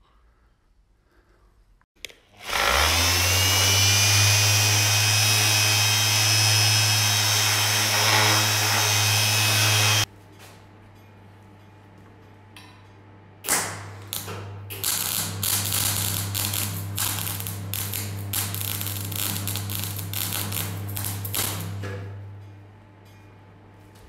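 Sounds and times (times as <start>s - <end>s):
welder arc crackling: 2.5s - 10.1s, 14.0s - 21.8s.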